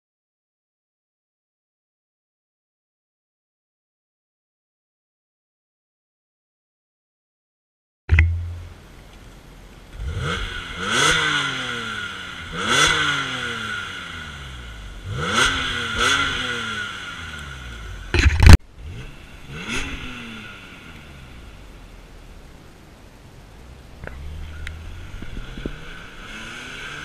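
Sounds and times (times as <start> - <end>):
car engine revving: 8.1 - 27.0.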